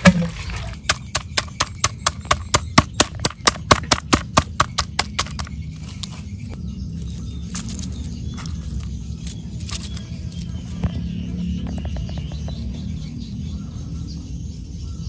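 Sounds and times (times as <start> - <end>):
wooden stick pounding crabs on board: 0.0 - 5.6.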